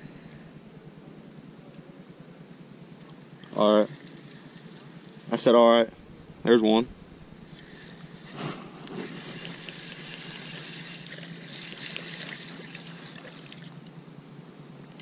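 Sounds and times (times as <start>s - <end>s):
water splashing and trickling: 8.9s - 13.8s.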